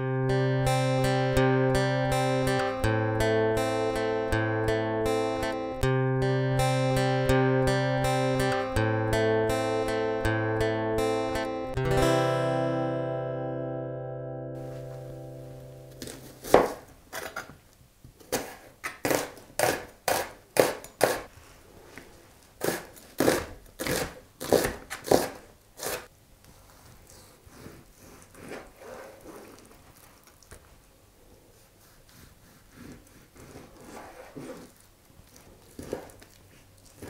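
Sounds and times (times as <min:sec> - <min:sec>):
acoustic guitar music: 0:00.0 - 0:16.8
knife chopping on cutting board: 0:16.4 - 0:16.8
knife slicing meat: 0:35.4 - 0:37.0.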